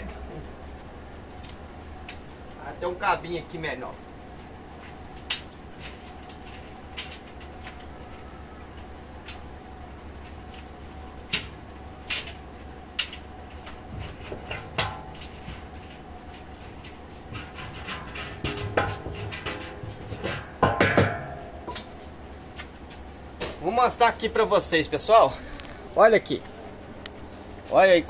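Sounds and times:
knocks and clatter in metal drum: 13.6s - 21.8s.

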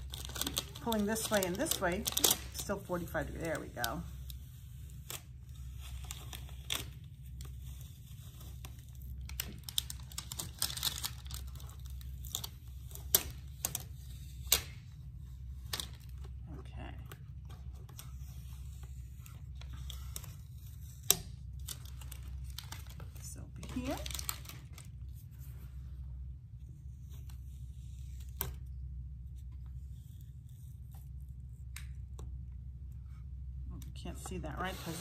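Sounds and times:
stencil peeling off with crackles: 0.0s - 14.9s.

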